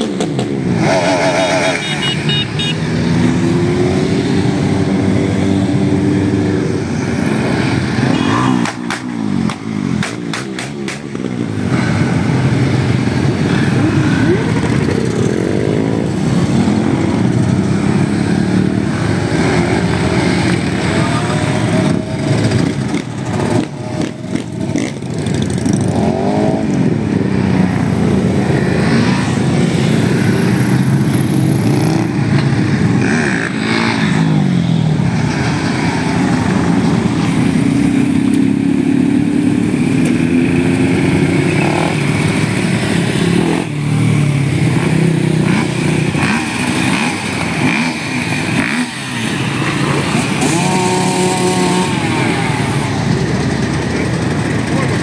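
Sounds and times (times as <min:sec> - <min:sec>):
motorcycles riding past revving: 0:00.0 - 0:55.0.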